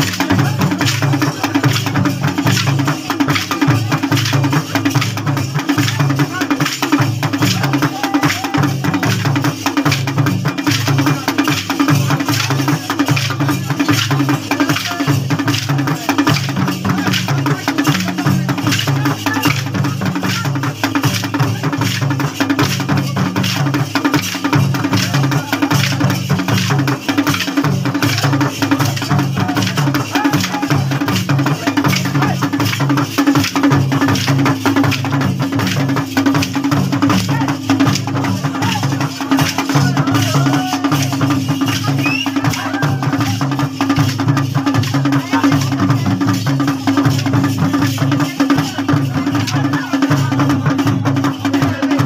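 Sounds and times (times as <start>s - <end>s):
folk drumming: 0.0s - 52.0s.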